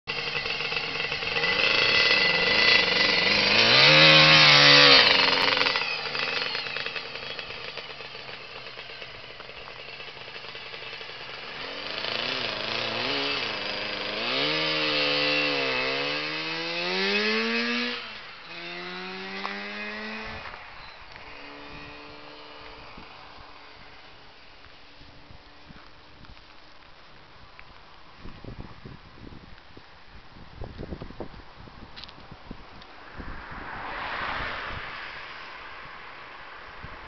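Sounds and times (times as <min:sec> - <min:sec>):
scooter engine revving: 0:00.0 - 0:24.2.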